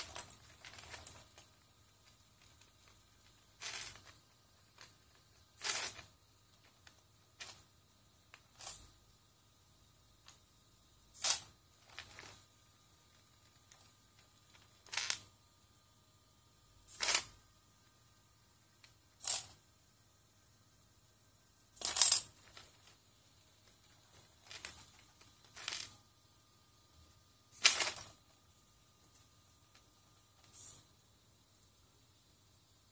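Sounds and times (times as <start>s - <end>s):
plastic bricks clattering: 0.0s - 7.6s, 11.2s - 12.5s, 13.4s - 15.3s, 21.8s - 23.0s, 23.6s - 26.0s, 27.6s - 28.2s.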